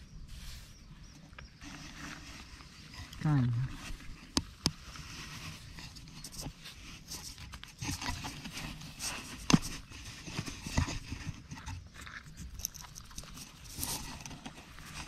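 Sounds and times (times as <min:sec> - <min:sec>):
hand scraping soil and straw: 0:00.0 - 0:15.0.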